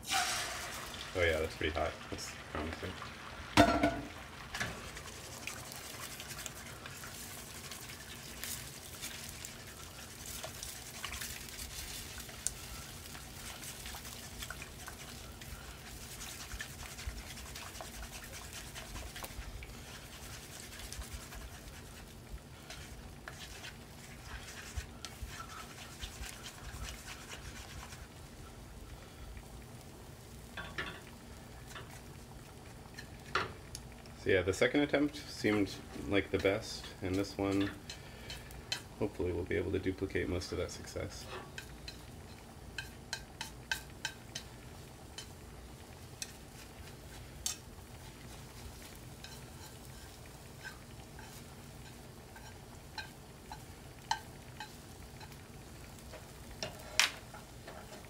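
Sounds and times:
egg sizzling in a pan: 0.0 - 58.0
chopsticks scraping a pan: 4.6 - 28.2, 32.8 - 33.6, 35.4 - 39.2, 40.9 - 58.0.

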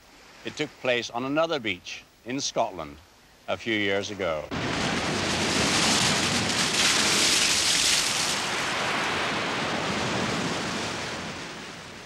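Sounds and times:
waves crashing on shore: 4.5 - 12.0.

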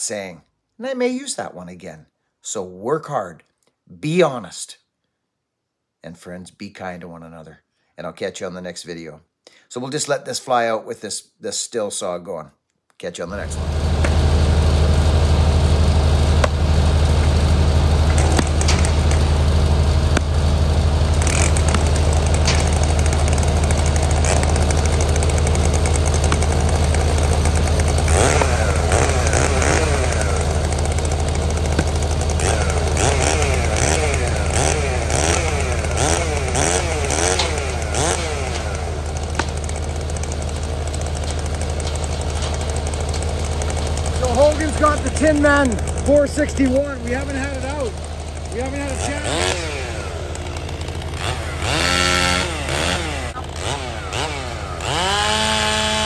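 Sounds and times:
chainsaw idling and revving: 13.3 - 56.0
axe splitting firewood: 13.5 - 56.0.

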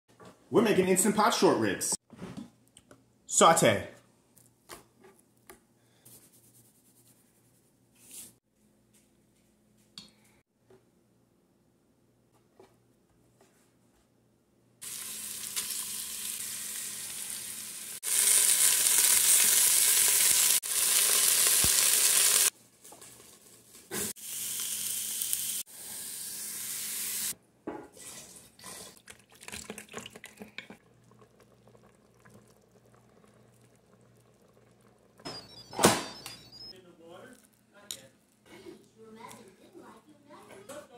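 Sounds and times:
meat sizzling in hot oil: 14.8 - 22.5, 24.0 - 27.4.

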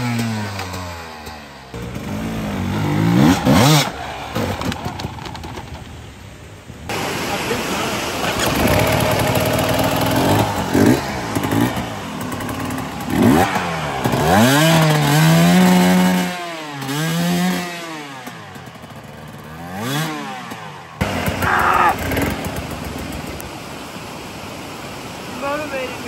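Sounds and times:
dirt bike engine revving: 0.0 - 4.9, 8.3 - 23.4
creek water rushing: 0.6 - 16.9, 17.8 - 26.0.

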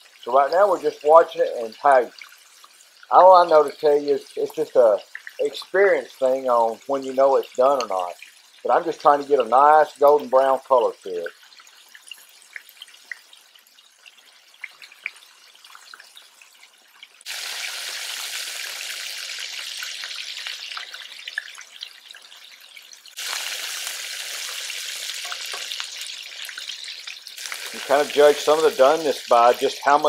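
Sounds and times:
meat deep frying in oil: 0.0 - 30.0.

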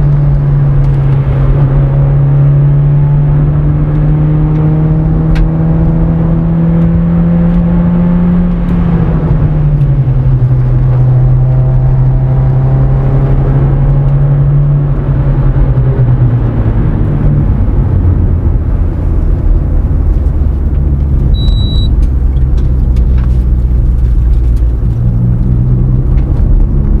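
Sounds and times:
car engine running: 0.0 - 27.0
road rumble: 0.0 - 27.0
short high beep: 21.3 - 21.9.

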